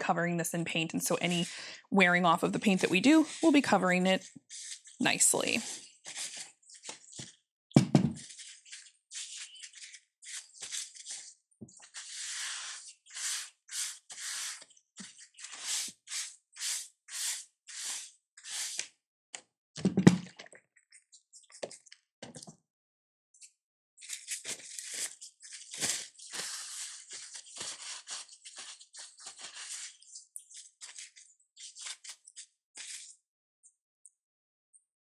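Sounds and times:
paper napkin rubbing on metal: 0:02.2 - 0:06.4
heavy metal thunk on table: 0:07.8 - 0:08.2.

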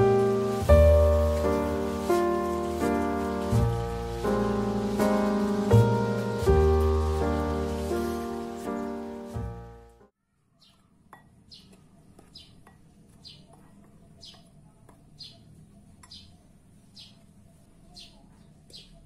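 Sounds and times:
small bird chirping: 0:10.5 - 0:12.6, 0:13.2 - 0:19.0.

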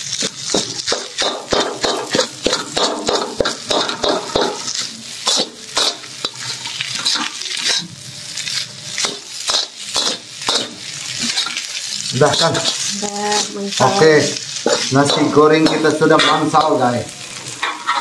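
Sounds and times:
light sizzle: 0:00.0 - 0:18.0
metal ladle scraping a wok: 0:00.2 - 0:08.6, 0:17.5 - 0:18.0.

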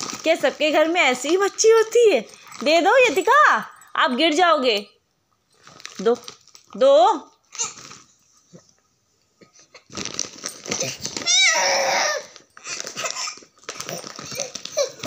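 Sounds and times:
baby squealing and laughing: 0:10.7 - 0:15.0.

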